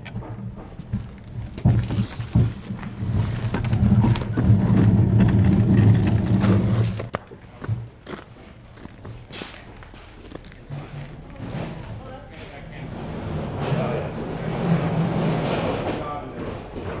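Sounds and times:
boots clicking on ice: 0.0s - 10.7s
sled runners grinding over ice: 0.1s - 7.2s, 8.0s - 17.0s.

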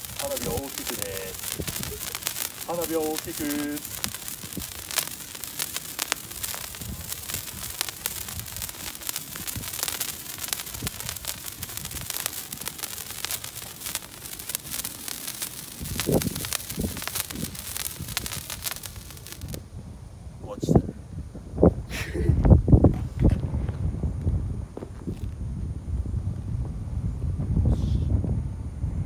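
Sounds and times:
spray firework hissing: 0.0s - 19.6s
fine crackling of sparks: 0.0s - 19.8s.

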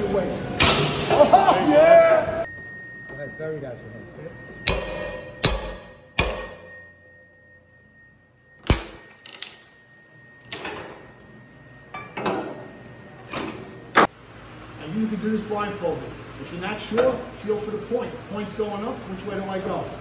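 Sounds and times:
metal-on-metal strikes: 4.5s - 9.8s.

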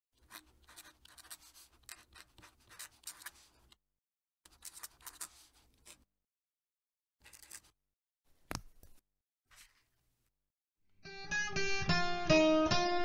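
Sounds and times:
pen nib scratching paper: 0.2s - 3.8s, 4.5s - 6.0s.

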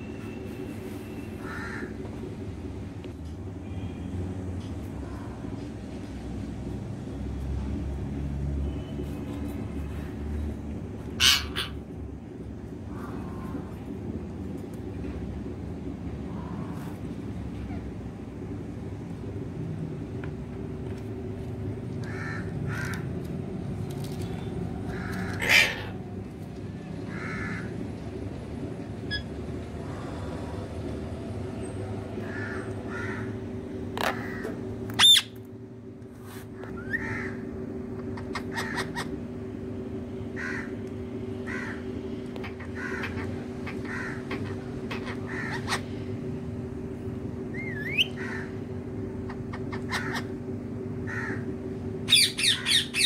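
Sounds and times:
parakeets squawking: 11.1s - 11.9s, 24.9s - 26.0s, 34.0s - 35.4s, 36.7s - 37.4s, 38.0s - 39.2s, 41.5s - 46.0s, 47.5s - 48.6s, 49.3s - 50.4s, 52.0s - 53.0s
loud sharp parakeet screeches: 11.2s - 11.8s, 25.1s - 26.0s.

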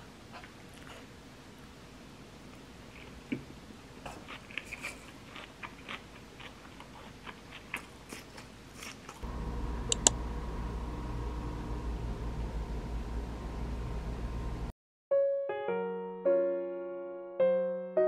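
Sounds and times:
crunching and chewing: 4.0s - 9.2s
steady low hum: 9.2s - 14.7s
sharp double click: 9.9s - 10.2s.

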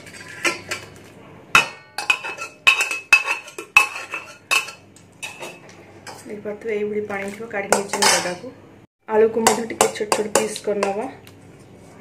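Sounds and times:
metal spoon scraping a pot: 0.0s - 6.4s, 7.2s - 8.4s.

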